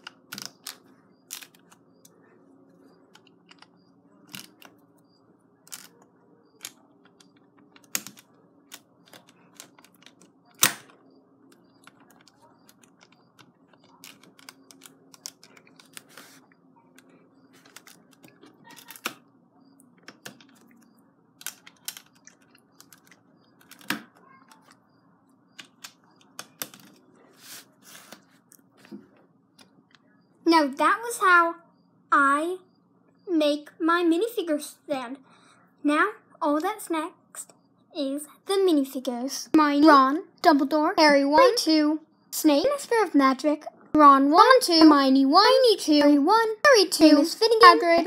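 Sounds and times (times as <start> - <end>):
plastic bricks clicking: 11.6 - 16.3, 21.4 - 24.8.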